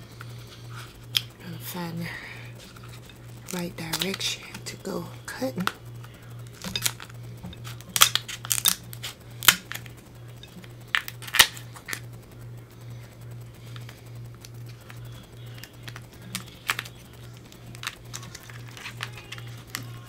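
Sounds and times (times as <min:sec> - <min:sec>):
shell cracking: 0:01.0 - 0:01.4, 0:02.6 - 0:04.8, 0:05.5 - 0:12.1, 0:13.6 - 0:20.0
shears snipping crab shell: 0:02.6 - 0:04.8, 0:05.5 - 0:10.0, 0:10.6 - 0:12.1, 0:13.8 - 0:20.0.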